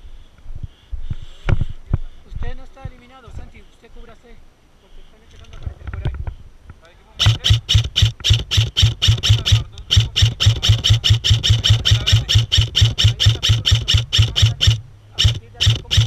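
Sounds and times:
airsoft rifle rapid shots: 7.2s - 16.0s.

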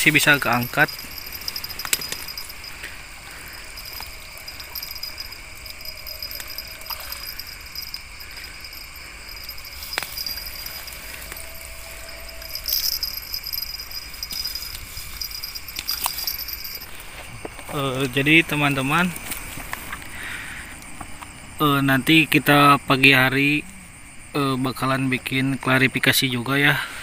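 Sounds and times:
night insects chorus: 0.0s - 27.0s
flowing river water: 0.8s - 9.6s.

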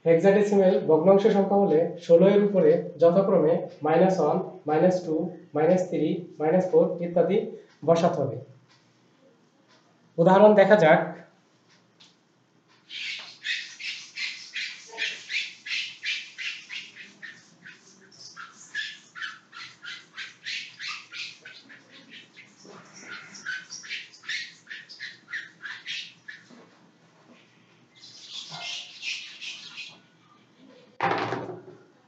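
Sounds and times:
marker squeaking on whiteboard: 12.8s - 30.1s.

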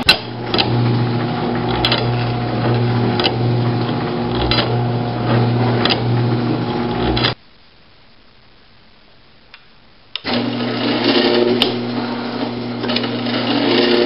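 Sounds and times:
electric motor humming: 0.0s - 7.4s, 10.2s - 14.0s.

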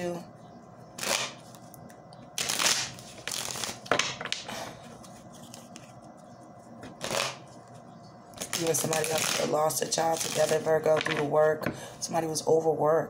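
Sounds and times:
cards being shuffled: 2.4s - 7.6s, 8.4s - 11.3s.

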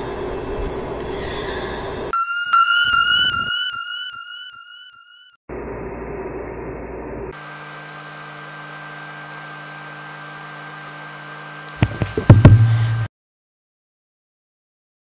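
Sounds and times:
thin high whine: 2.1s - 5.9s
electrical hum: 5.5s - 13.1s
loud low buzz: 5.5s - 13.1s
sharp clicks and knocks: 11.7s - 13.1s.

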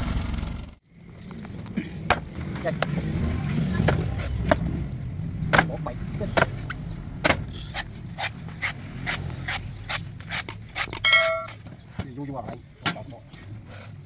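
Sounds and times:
low traffic rumble: 0.0s - 14.0s
knife chopping coconut: 5.5s - 11.4s.

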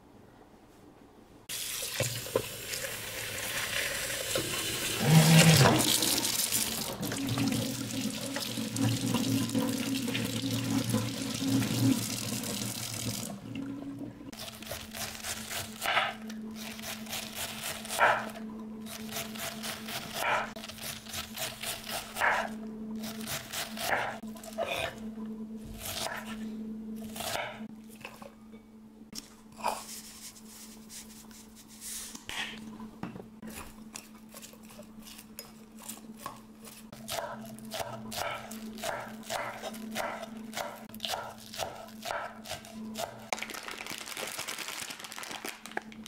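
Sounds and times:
steady low hum: 13.2s - 43.3s.

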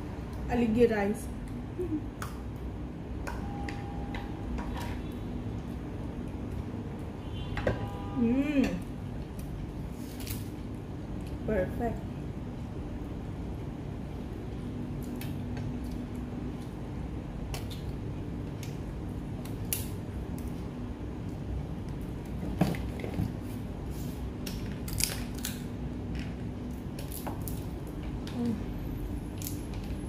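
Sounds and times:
crab shells cracking: 17.4s - 20.6s, 24.4s - 28.3s, 29.3s - 30.0s.

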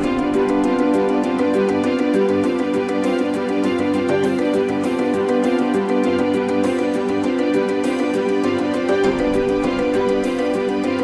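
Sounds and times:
held music notes: 0.0s - 11.0s
light ticking beat: 0.0s - 11.0s.

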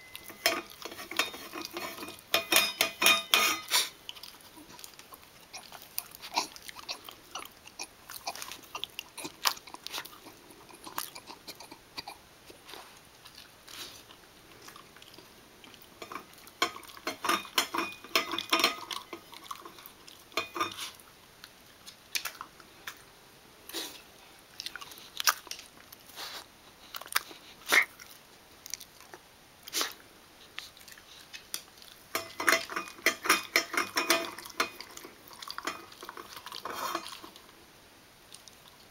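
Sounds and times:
metal bowl clinking: 0.0s - 3.7s, 16.0s - 19.7s, 20.4s - 20.8s, 32.1s - 35.0s
dog chewing and licking: 0.1s - 23.1s, 24.5s - 37.6s.

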